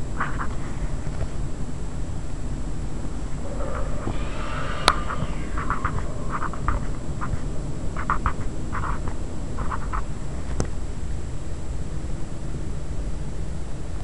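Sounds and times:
low rumble: 0:03.0 - 0:09.5.

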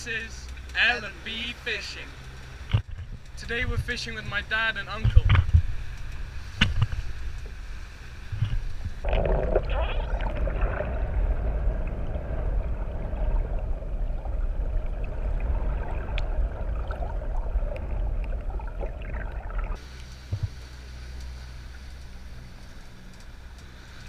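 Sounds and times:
boat wake hissing: 0:00.0 - 0:18.0
deep boat rumble: 0:00.0 - 0:24.0
underwater rush of water: 0:05.5 - 0:23.0.

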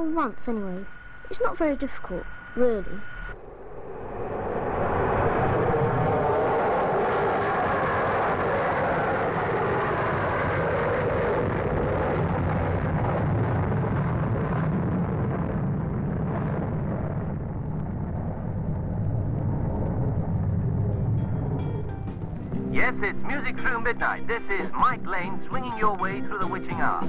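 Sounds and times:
jet engines at takeoff power: 0:00.0 - 0:25.2.

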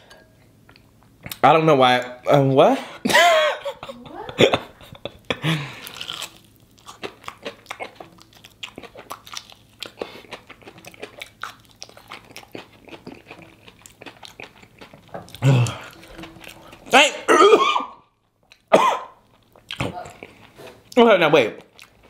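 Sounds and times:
crunchy chewing: 0:05.6 - 0:17.0, 0:17.8 - 0:21.0, 0:21.6 - 0:22.0
person groaning: 0:15.4 - 0:16.0.

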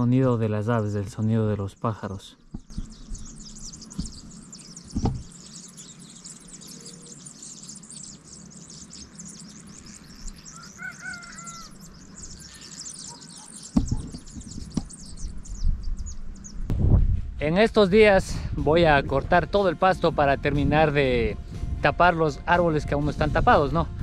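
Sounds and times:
lower bird calls: 0:00.0 - 0:16.7
small birds chirping: 0:00.0 - 0:16.7
dull thumps: 0:02.5 - 0:03.2, 0:03.9 - 0:04.2, 0:04.9 - 0:05.3, 0:13.7 - 0:14.9.

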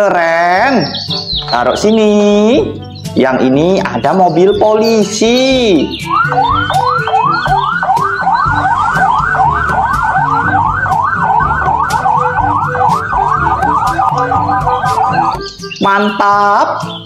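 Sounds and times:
police siren yelping: 0:05.2 - 0:17.0.

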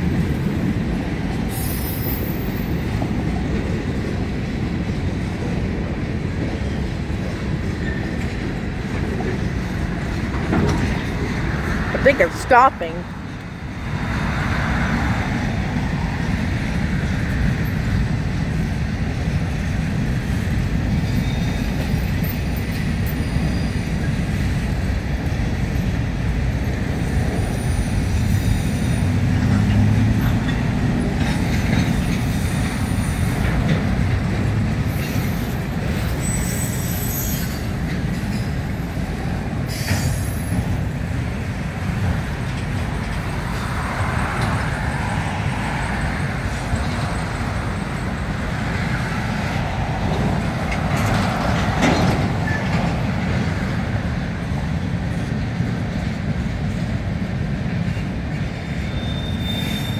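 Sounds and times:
train wheels rumbling on rail: 0:00.0 - 0:59.9
high-pitched wheel squeals: 0:34.9 - 0:37.7, 0:58.8 - 0:59.9.

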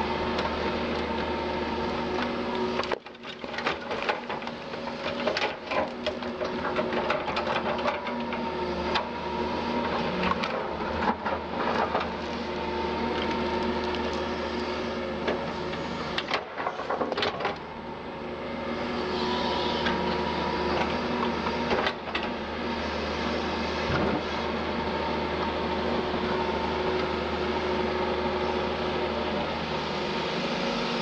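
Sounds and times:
excavator diesel engine humming: 0:00.0 - 0:31.0
hydraulic whine: 0:18.4 - 0:31.0.

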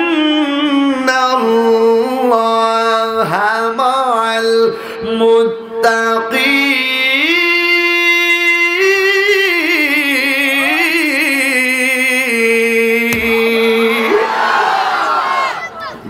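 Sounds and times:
man singing: 0:00.0 - 0:14.2.

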